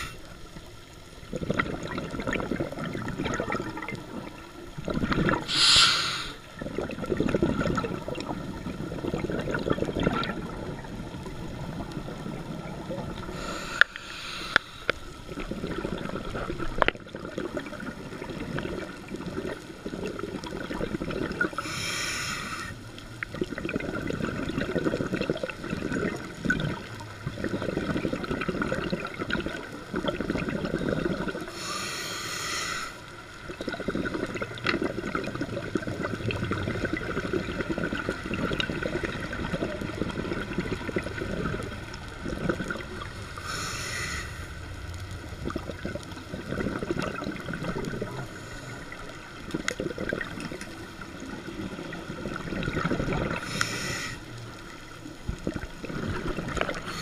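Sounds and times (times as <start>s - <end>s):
bubbles gurgling underwater: 0.0s - 5.6s, 6.4s - 13.6s, 15.1s - 21.7s, 22.9s - 31.6s, 33.2s - 43.6s, 44.5s - 57.0s
regulator inhalation hiss: 5.4s - 6.5s, 13.3s - 15.0s, 21.6s - 22.8s, 31.5s - 33.0s, 43.3s - 44.5s, 53.4s - 54.4s.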